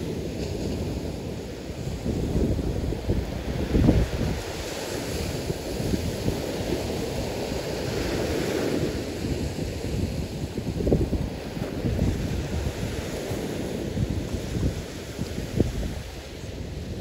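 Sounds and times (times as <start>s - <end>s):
small waves washing onto sand: 0.0s - 17.0s
wind buffeting microphone: 0.0s - 17.0s.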